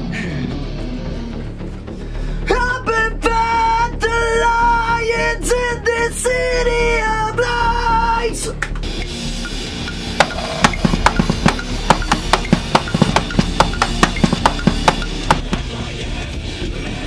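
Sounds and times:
drum and cymbal hits: 0:09.0 - 0:16.0.

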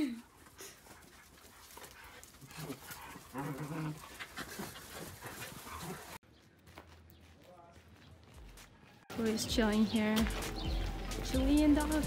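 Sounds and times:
dogs panting: 0:00.2 - 0:06.2
paws scuffling on dirt: 0:00.3 - 0:12.0.

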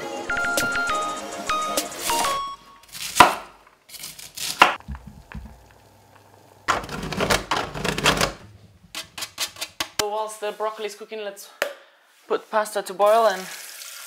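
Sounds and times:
knife knocking on wooden board: 0:04.8 - 0:05.6.

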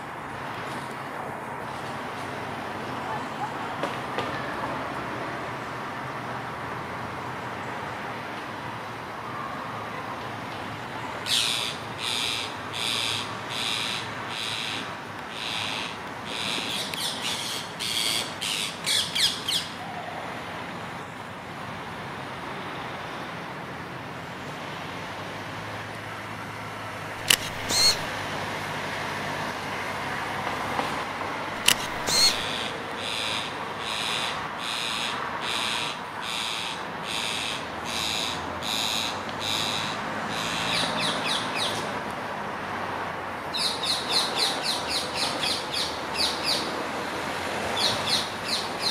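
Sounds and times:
parakeets squawking: 0:27.2 - 0:28.1, 0:31.6 - 0:35.1.

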